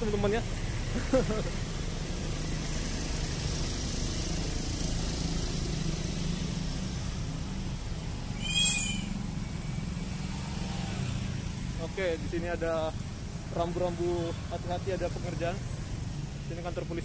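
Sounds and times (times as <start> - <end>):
motorcycles and cars passing: 0.0 - 17.0
slow street traffic rumble: 0.0 - 17.0
brief high-pitched squeal: 8.4 - 9.2.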